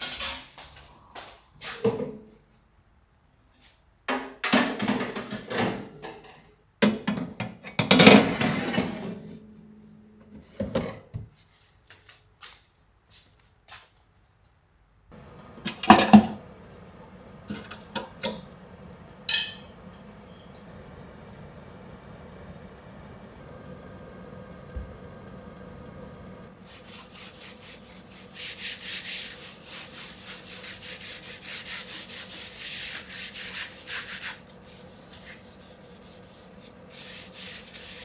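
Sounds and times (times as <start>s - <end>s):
microwave oven humming: 15.1s - 38.0s.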